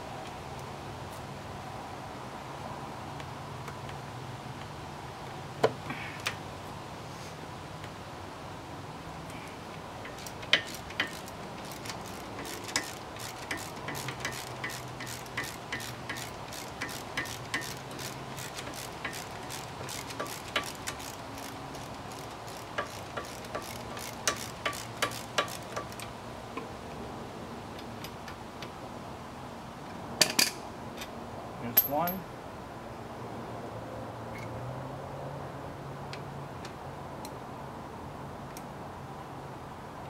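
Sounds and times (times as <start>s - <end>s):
metallic clatter: 10.0s - 26.1s
socket ratchet clicking: 10.0s - 26.1s.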